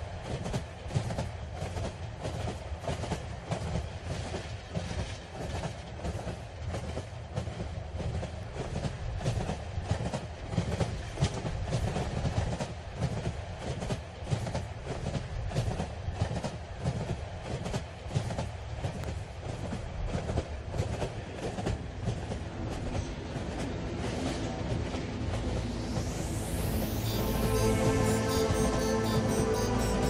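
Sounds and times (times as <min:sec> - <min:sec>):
wheels clattering on rails: 0:00.0 - 0:26.5
train rumble from inside: 0:00.0 - 0:30.0.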